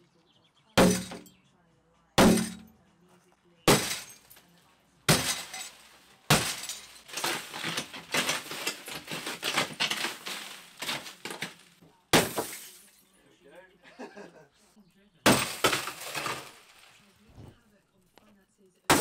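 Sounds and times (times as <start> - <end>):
sledgehammer striking glass: 0.8 - 1.3, 2.2 - 2.7, 3.7 - 4.4, 5.1 - 12.9, 15.3 - 16.8
glass crackling and tinkling: 5.1 - 11.7.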